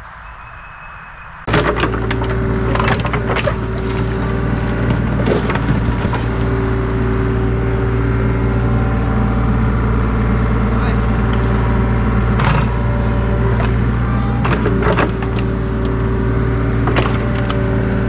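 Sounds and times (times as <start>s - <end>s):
excavator engine running: 1.4s - 18.0s
bucket scraping and knocking soil: 1.5s - 6.8s.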